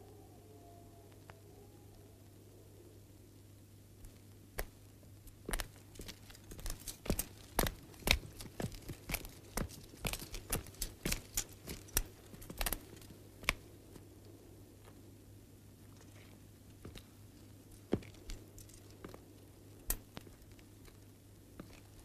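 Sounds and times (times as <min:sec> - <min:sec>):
low steady hum: 0:00.0 - 0:22.0
footsteps on dirt ground: 0:05.4 - 0:13.6.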